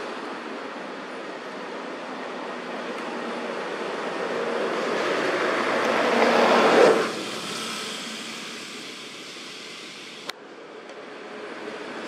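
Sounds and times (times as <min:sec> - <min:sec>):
motor vehicle passing: 0:04.3 - 0:08.5.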